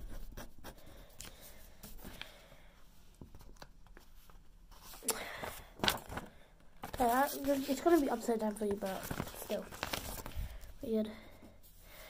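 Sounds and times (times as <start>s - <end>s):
pen nib scratching paper: 0.0s - 0.8s
paper rustling: 3.2s - 10.8s.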